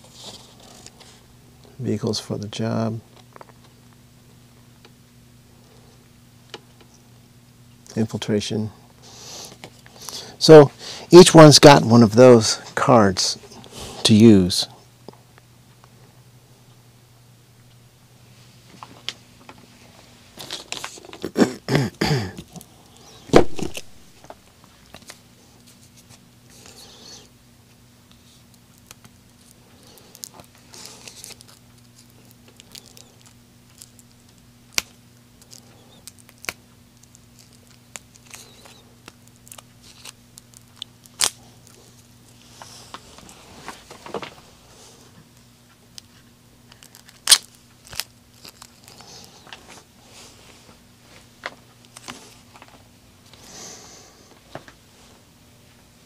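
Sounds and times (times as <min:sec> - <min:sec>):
cards and cardboard rustling: 0:20.3 - 0:21.4, 0:28.2 - 0:44.9, 0:46.1 - 0:53.5
plastic bags crinkling: 0:28.7 - 0:44.8, 0:46.6 - 0:50.4.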